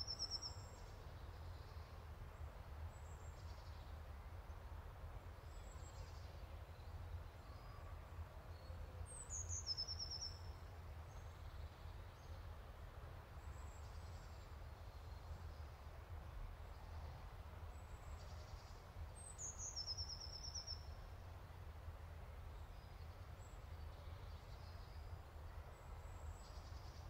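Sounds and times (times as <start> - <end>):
songbird singing a trill: 0.0 - 2.0, 5.4 - 12.5, 17.7 - 21.2, 22.5 - 27.0.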